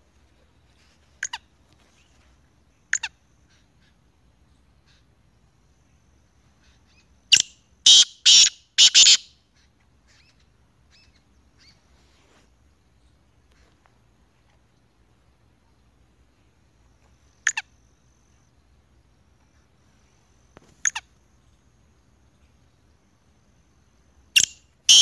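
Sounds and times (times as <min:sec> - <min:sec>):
francolin calling: 0:00.6 - 0:12.0, 0:16.4 - 0:25.0.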